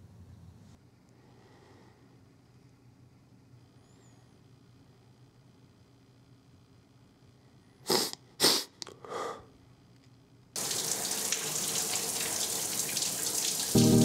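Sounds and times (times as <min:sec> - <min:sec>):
man sniffling while crying: 0:07.8 - 0:09.6
shower spray hissing: 0:10.6 - 0:14.0.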